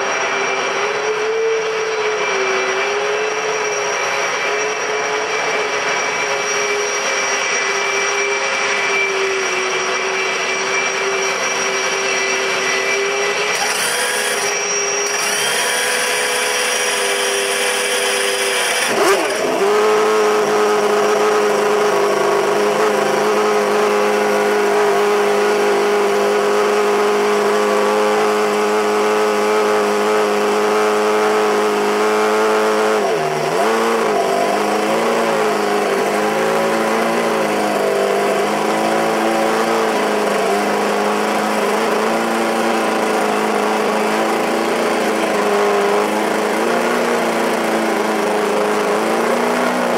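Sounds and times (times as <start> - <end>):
mechanical whine: 0.0 - 49.9.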